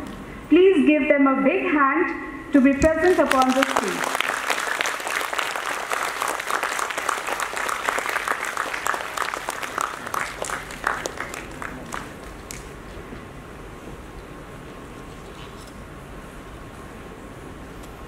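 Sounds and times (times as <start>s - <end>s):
audience applause: 3.1s - 12.8s.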